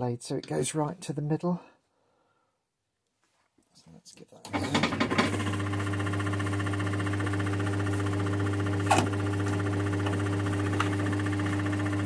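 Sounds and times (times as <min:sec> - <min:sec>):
lathe motor humming: 0:04.5 - 0:12.0.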